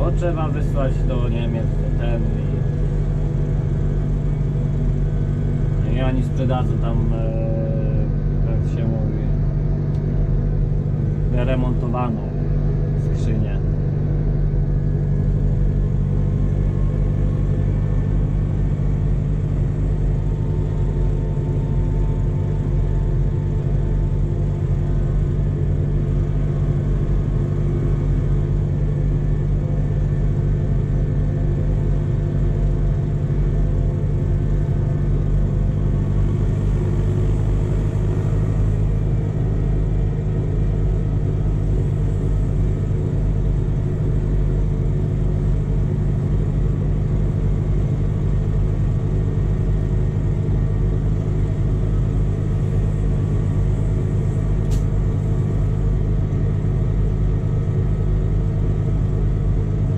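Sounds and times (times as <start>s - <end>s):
faint high whine: 0.0s - 58.4s
tractor engine droning: 0.0s - 59.9s.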